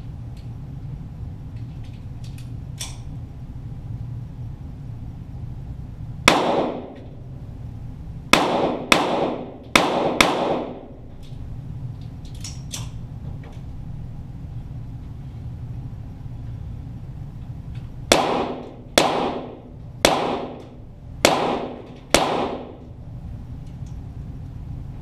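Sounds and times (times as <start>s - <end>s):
pistol shots: 6.3s - 7.1s, 8.3s - 11.0s, 18.1s - 22.9s.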